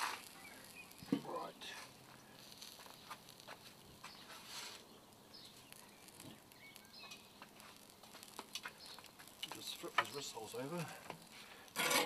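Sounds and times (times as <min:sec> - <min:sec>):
faint bird chirps: 0:00.3 - 0:03.1, 0:04.0 - 0:07.4.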